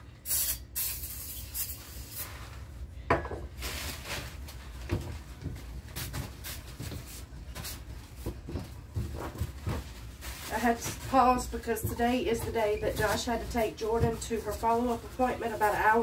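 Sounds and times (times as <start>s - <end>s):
spray can spraying: 0.2s - 2.3s.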